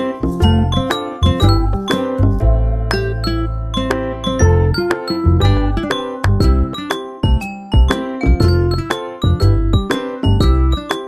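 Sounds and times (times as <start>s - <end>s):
low held bass line: 0.2s - 6.7s
bell-like tune: 0.4s - 2.2s, 2.9s - 11.0s.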